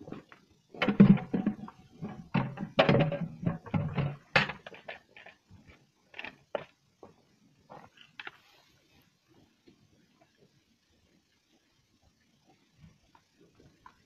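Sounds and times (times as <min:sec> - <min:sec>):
cattle eating at metal feeder: 0:00.0 - 0:06.8
plastic pails clunking: 0:00.8 - 0:05.3.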